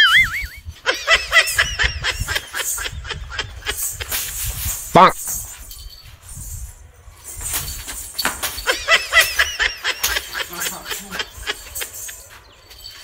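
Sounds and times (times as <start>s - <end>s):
high squeaky notes: 0.0s - 0.7s.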